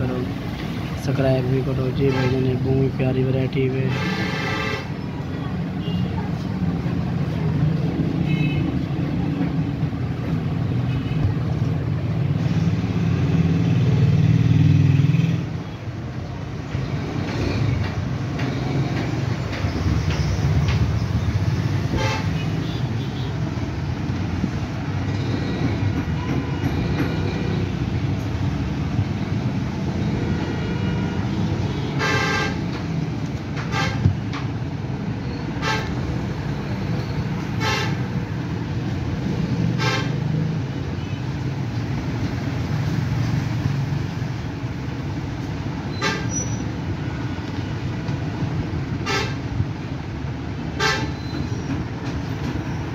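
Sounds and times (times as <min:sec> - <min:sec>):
road traffic rumble: 0:00.0 - 0:52.9
vehicle horn toots: 0:30.3 - 0:32.6.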